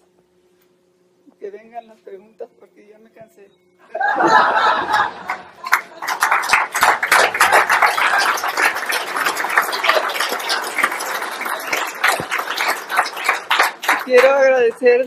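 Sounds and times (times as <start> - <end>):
audience applauding: 4.9 - 14.8.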